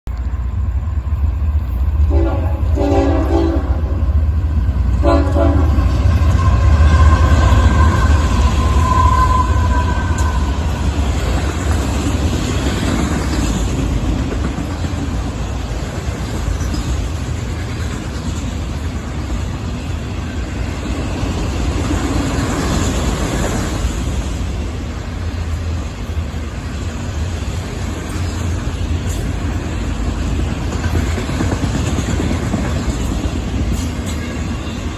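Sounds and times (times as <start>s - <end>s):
freight train wheels rumbling: 0.1s - 34.9s
train horn blasts: 2.0s - 4.1s, 5.0s - 10.8s.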